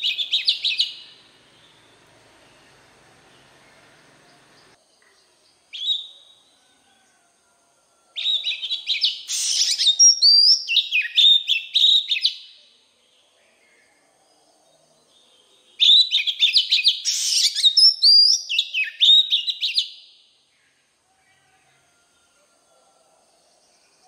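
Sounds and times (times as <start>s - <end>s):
bird singing whistles and trills: 0.0s - 2.6s, 5.7s - 6.4s, 8.2s - 12.6s, 15.2s - 20.2s.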